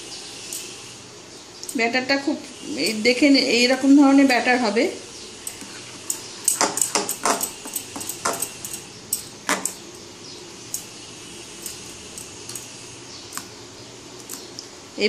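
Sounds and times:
spoon stirring batter: 0:05.4 - 0:08.8
spoon clinking against glass bowl: 0:05.4 - 0:09.8.

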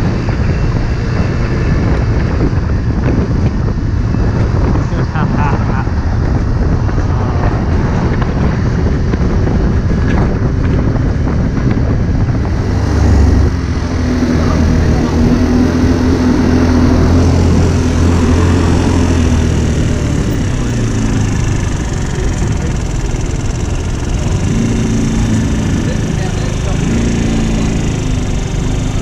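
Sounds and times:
wind rushing over microphone: 0:00.0 - 0:29.0
small scooter engine: 0:12.2 - 0:29.0.

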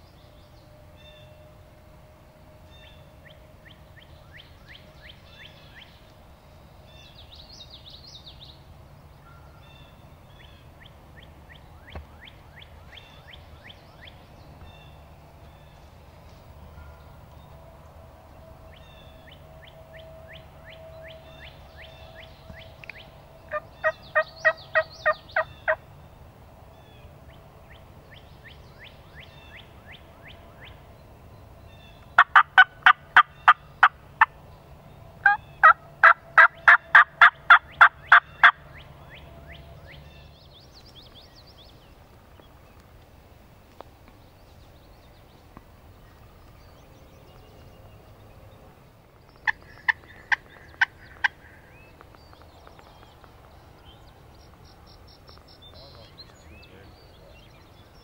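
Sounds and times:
turkey yelping: 0:23.5 - 0:25.8, 0:32.2 - 0:34.3, 0:35.2 - 0:38.6.

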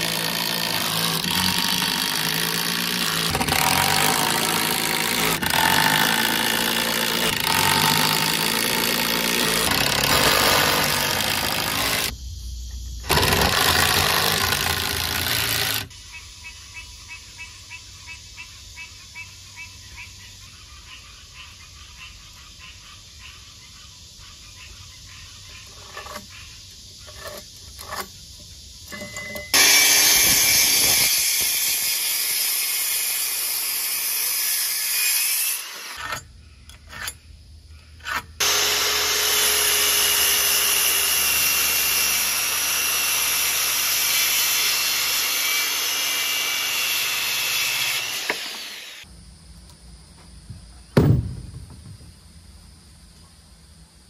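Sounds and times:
circular saw cutting wood: 0:00.0 - 0:12.2, 0:13.0 - 0:15.9, 0:25.6 - 0:26.4, 0:27.0 - 0:28.1, 0:28.9 - 0:37.1, 0:38.0 - 0:49.1
knocks: 0:51.0 - 0:52.2.

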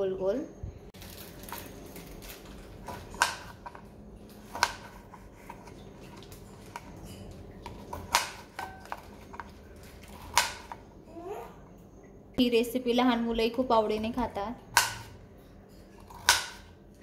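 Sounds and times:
knife chopping on cutting board: 0:04.5 - 0:05.5, 0:16.1 - 0:16.7.

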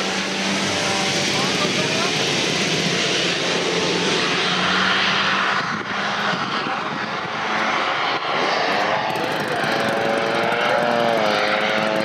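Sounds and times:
model aircraft engine running: 0:00.0 - 0:12.0.

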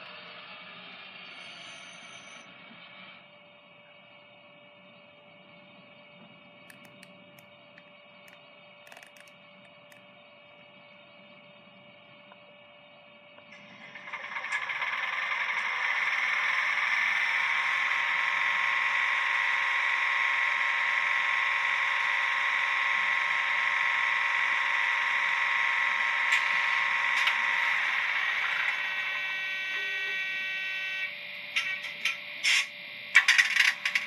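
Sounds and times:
model train whirring with whine: 0:00.0 - 0:34.0
faint clicks: 0:06.7 - 0:07.5, 0:08.3 - 0:10.0.

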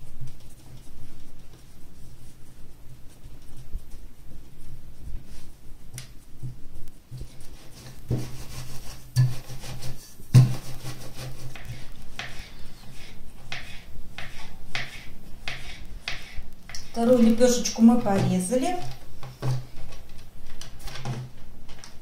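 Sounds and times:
rolling pin on floured counter: 0:06.0 - 0:17.4
knife chopping dough: 0:09.2 - 0:17.0.

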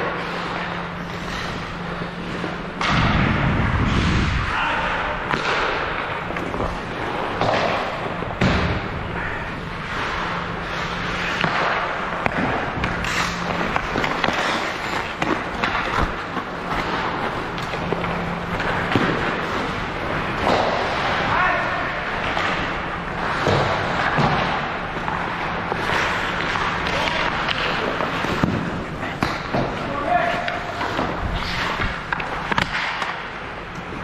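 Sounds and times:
pucks and sticks knocking boards: 0:00.0 - 0:34.0
steady hum: 0:00.0 - 0:34.0
heavy low thud and rumble: 0:02.8 - 0:04.5.

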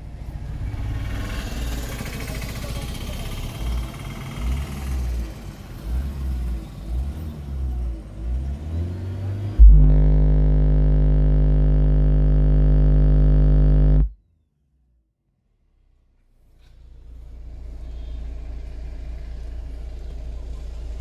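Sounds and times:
loud buzzy deep hum: 0:09.6 - 0:14.1
low rumbling: 0:09.6 - 0:14.1.

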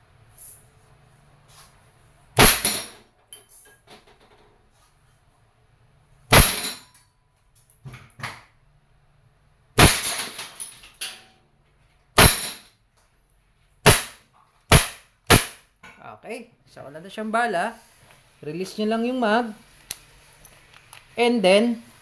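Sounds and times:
air pistol shots: 0:02.4 - 0:03.0, 0:06.3 - 0:06.8, 0:09.8 - 0:10.4, 0:12.2 - 0:12.7, 0:13.8 - 0:15.7.

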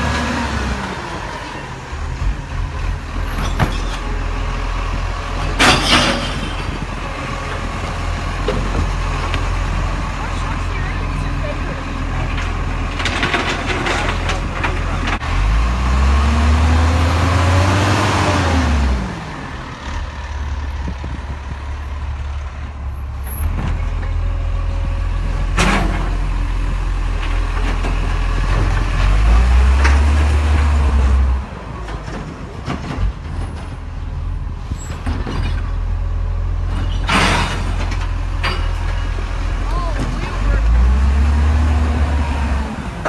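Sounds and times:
truck diesel engine revving: 0:14.8 - 0:20.9, 0:28.0 - 0:31.6, 0:39.2 - 0:43.0.

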